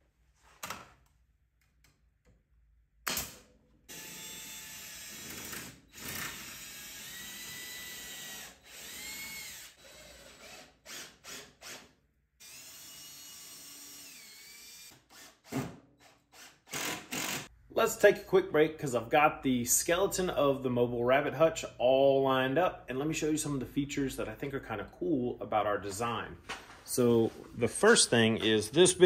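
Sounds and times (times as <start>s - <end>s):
cordless drill whine: 3.9s - 15.4s, 16.3s - 17.5s.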